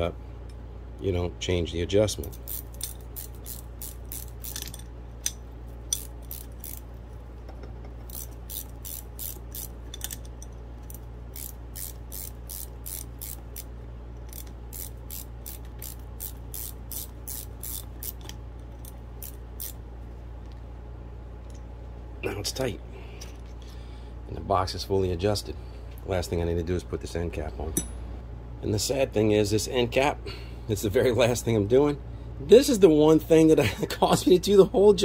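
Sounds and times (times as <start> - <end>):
ratcheting wrench clicking: 2.3 - 6.9, 8.0 - 19.8.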